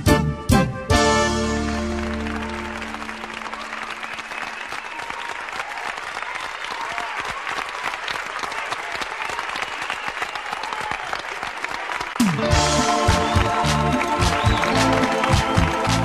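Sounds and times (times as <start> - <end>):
live band playing: 0.0 - 4.6, 12.2 - 16.0
audience applauding and cheering: 0.9 - 16.0.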